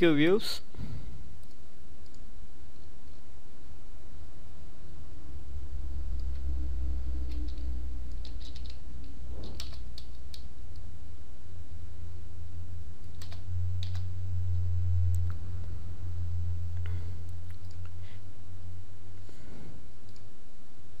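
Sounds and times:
steady low hum: 0:00.0 - 0:21.0
computer keyboard keystrokes: 0:07.2 - 0:10.8, 0:13.0 - 0:14.1.

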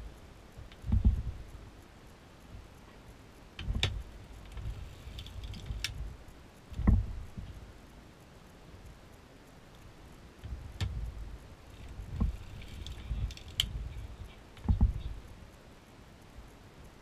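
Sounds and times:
sharp metallic clicks: 0:08.2 - 0:15.4.

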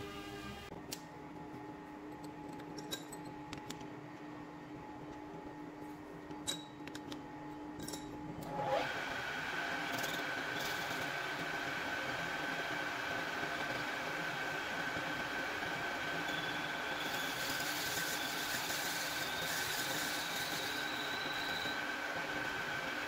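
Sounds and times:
lathe spindle whine: 0:08.5 - 0:23.0.

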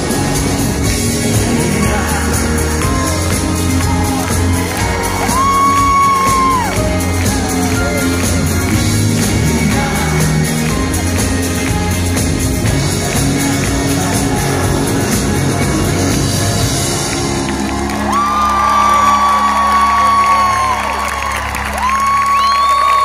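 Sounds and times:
pop band playing loudly: 0:00.0 - 0:23.0
crowd shouting and whooping: 0:01.8 - 0:11.9, 0:16.8 - 0:23.0.

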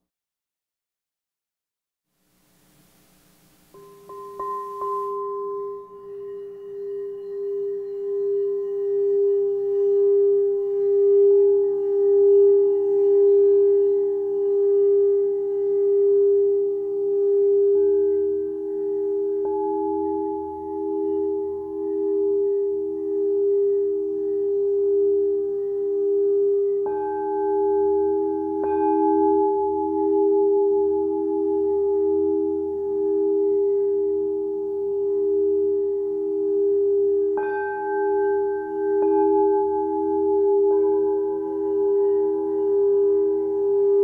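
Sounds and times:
singing bowls ringing: 0:03.7 - 0:44.0.

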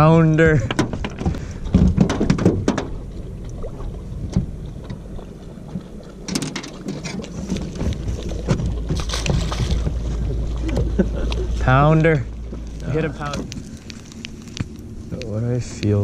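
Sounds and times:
wind rumble on microphone: 0:00.0 - 0:16.0
rustling and knocking: 0:00.6 - 0:03.0, 0:06.3 - 0:11.1.

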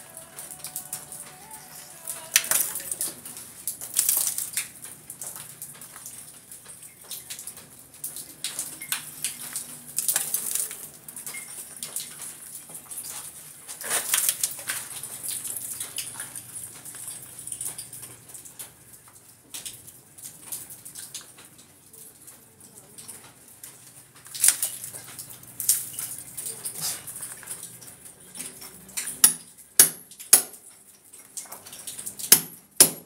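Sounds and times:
plaster scraping and crumbling: 0:13.1 - 0:15.0.

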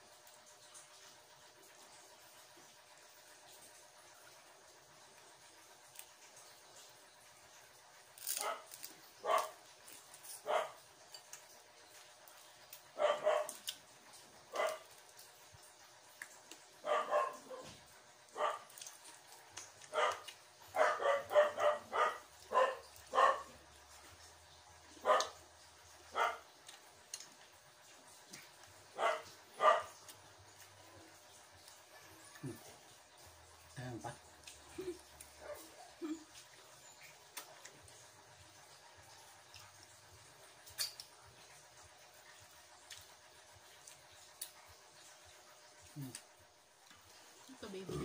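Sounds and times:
dog barking: 0:08.3 - 0:09.6, 0:10.2 - 0:10.8, 0:13.0 - 0:13.7, 0:14.5 - 0:14.9, 0:16.8 - 0:18.9, 0:19.8 - 0:23.7, 0:24.9 - 0:25.4, 0:26.1 - 0:26.5, 0:28.9 - 0:30.1, 0:35.4 - 0:36.1.

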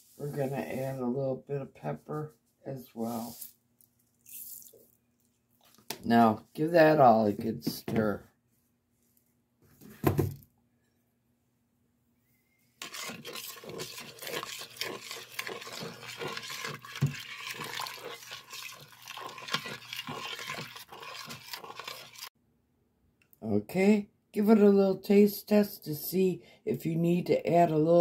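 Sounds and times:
liquid sloshing: 0:12.8 - 0:22.3
utensil scraping a metal pot: 0:12.8 - 0:22.3.

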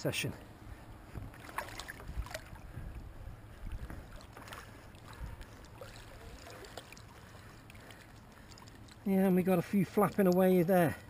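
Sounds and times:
water sloshing and splashing: 0:00.7 - 0:11.0
water dripping: 0:03.8 - 0:10.6.

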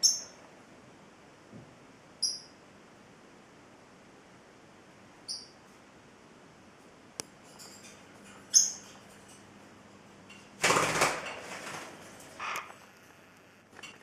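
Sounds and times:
parrot chirp: 0:00.0 - 0:00.4, 0:02.2 - 0:02.6, 0:05.2 - 0:05.6, 0:08.5 - 0:08.9
bird splashing and wing-flapping: 0:10.6 - 0:12.4.

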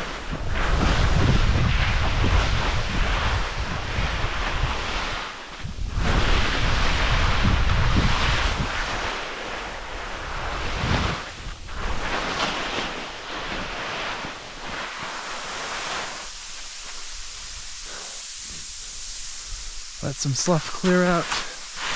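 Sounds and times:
loose snow sliding: 0:00.0 - 0:21.9
skis hissing through snow: 0:00.0 - 0:21.9
wind buffeting microphone: 0:00.2 - 0:09.0, 0:09.7 - 0:12.6.

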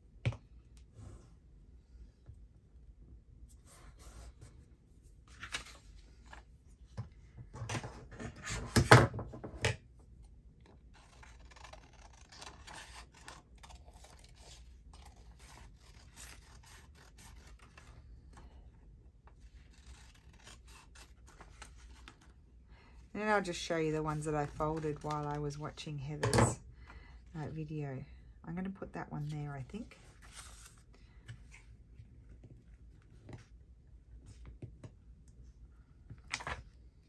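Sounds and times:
scissors snipping paper: 0:11.0 - 0:18.0, 0:19.6 - 0:21.7
paper rustling: 0:29.9 - 0:31.6.

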